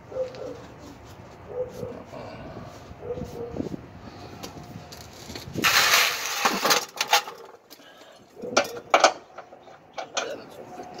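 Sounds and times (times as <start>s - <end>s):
gloved hand scraping rustle: 0.2s - 6.4s.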